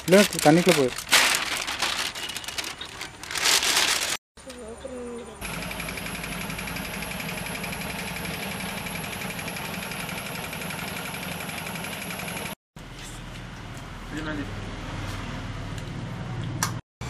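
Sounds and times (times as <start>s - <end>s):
small engine running: 5.4s - 12.6s.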